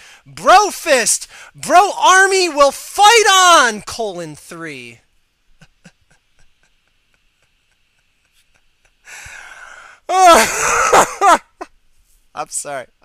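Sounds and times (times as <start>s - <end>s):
man inhaling sharply: 0.0s - 0.3s, 1.3s - 1.6s, 9.0s - 10.1s.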